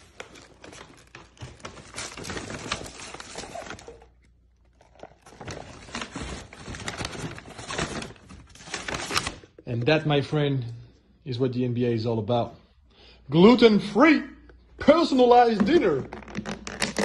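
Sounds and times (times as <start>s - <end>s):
paper bags rustling: 0.0s - 9.6s.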